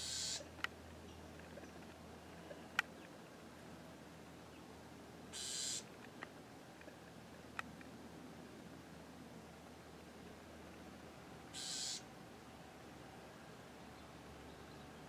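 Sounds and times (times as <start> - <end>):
wren harsh buzz call: 0.0 - 0.5, 5.3 - 5.9, 11.5 - 12.1.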